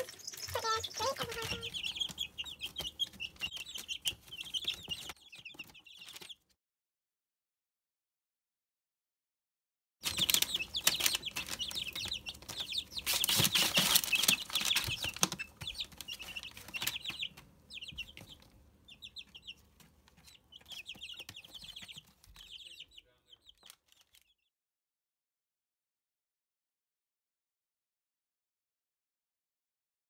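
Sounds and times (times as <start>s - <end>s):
chicks peeping: 0.0s - 6.4s, 10.0s - 24.4s.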